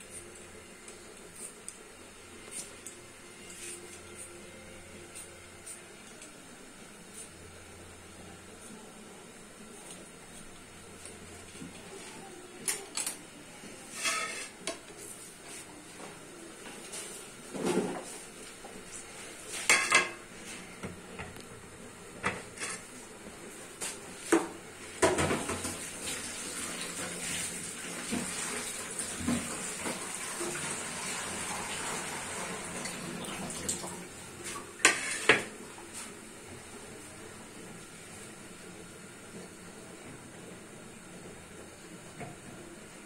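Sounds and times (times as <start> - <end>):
kitchen tap running: 25.0 - 34.1.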